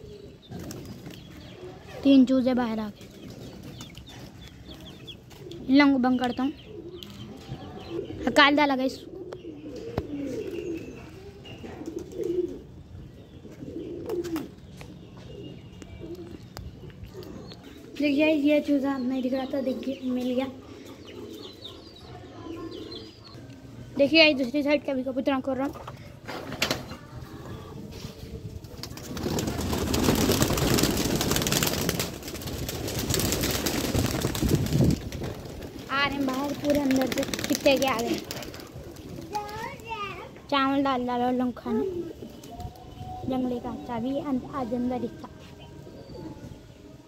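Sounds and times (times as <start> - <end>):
pigeons cooing: 0.0 - 2.0, 3.0 - 23.4, 25.9 - 39.8, 41.4 - 42.8
pigeons flapping wings: 0.5 - 1.3, 28.6 - 40.1.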